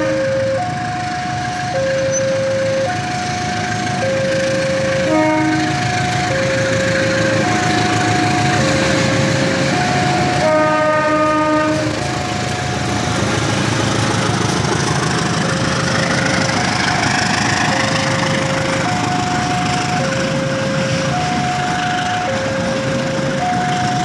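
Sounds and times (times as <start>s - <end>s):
locomotive horn: 0.0s - 0.8s, 4.7s - 12.5s
two-tone crossing alarm: 0.0s - 12.8s, 14.8s - 24.0s
train wheel and rail noise: 0.0s - 24.0s.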